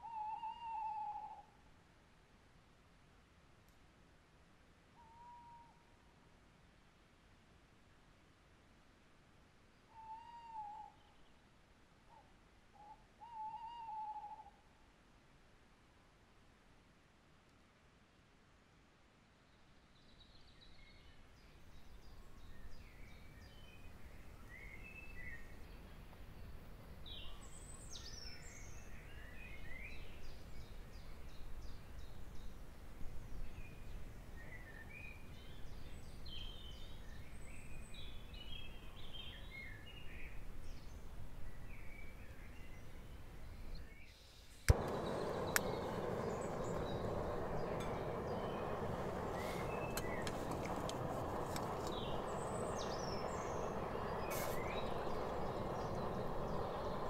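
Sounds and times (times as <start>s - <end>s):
songbirds chirping and trilling: 20.0s - 57.0s
loud steady rushing noise: 44.7s - 57.0s.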